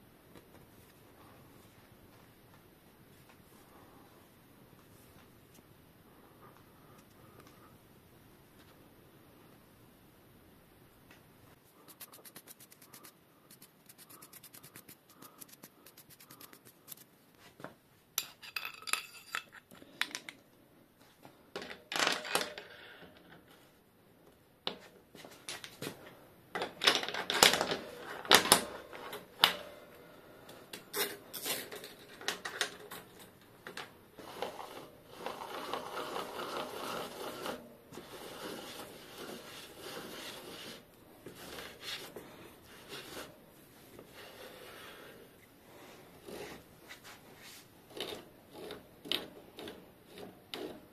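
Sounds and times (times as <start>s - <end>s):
metal rubbing: 11.8s - 17.1s, 34.2s - 50.8s
metal tools clinking and clanking: 18.2s - 19.7s.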